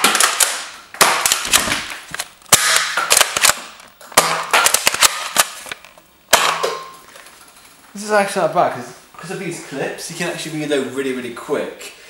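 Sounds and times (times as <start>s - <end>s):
toy dart blaster firing: 0.0s - 5.7s.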